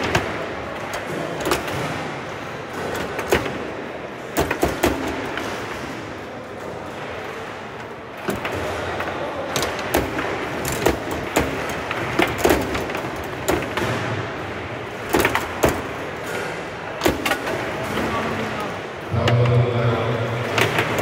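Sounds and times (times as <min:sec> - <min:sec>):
foosball rods clacking: 0:08.2 - 0:14.2, 0:14.9 - 0:18.1.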